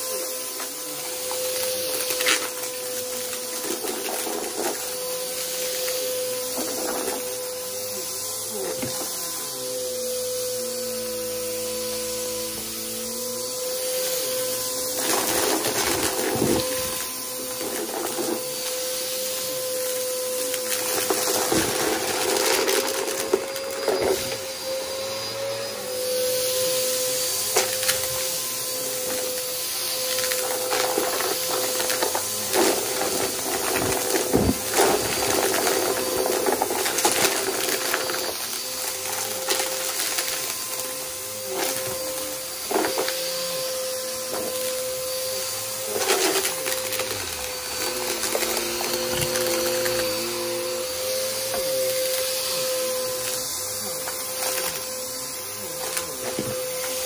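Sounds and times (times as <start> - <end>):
vacuum cleaner motor hum: 0.0 - 57.0
debris crackling in vacuum: 14.3 - 24.4, 27.5 - 43.2, 43.8 - 51.2.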